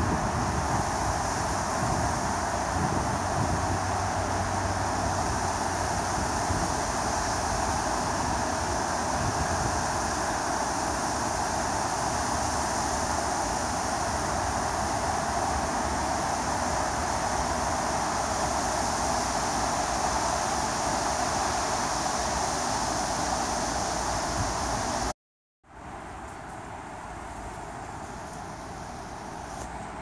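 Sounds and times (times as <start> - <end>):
wind buffeting microphone: 0.0 - 10.5
wind through reeds: 0.0 - 25.1, 25.7 - 30.0.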